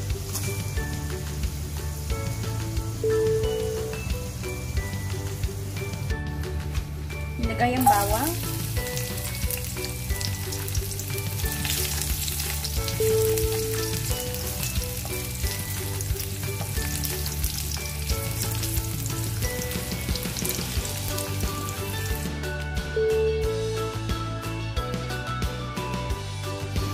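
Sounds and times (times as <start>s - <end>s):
garlic sizzling in oil: 0.0s - 6.1s, 7.5s - 22.3s.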